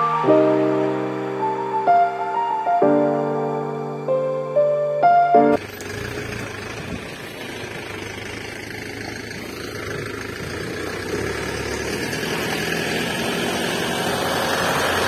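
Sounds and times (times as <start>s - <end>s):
truck engine running: 5.2s - 15.0s.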